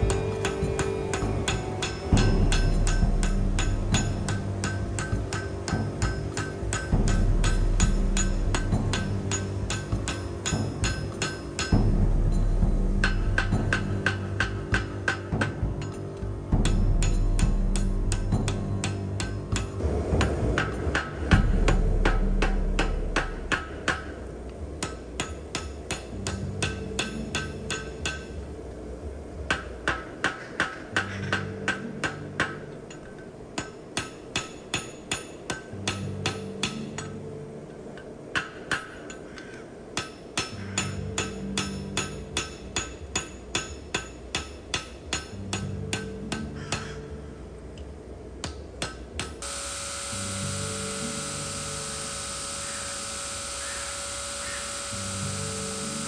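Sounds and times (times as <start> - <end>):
hammer striking steel on anvil: 0.0 - 12.2, 13.0 - 28.4, 29.5 - 37.2, 38.0 - 47.0.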